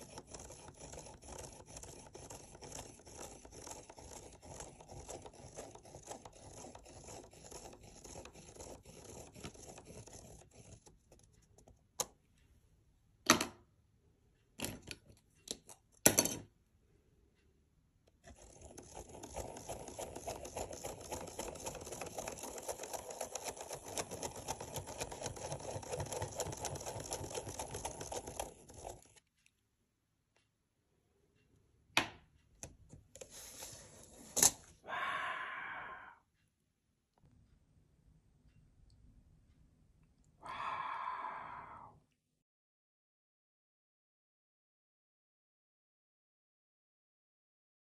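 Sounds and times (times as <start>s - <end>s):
pen scratching on paper: 0.0s - 11.7s, 18.3s - 29.2s.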